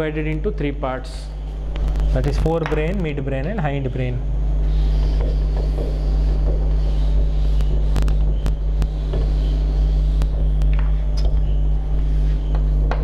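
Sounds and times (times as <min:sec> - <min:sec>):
steady low hum: 0:00.0 - 0:13.0
duster wiping chalkboard: 0:04.6 - 0:11.1, 0:11.8 - 0:13.0.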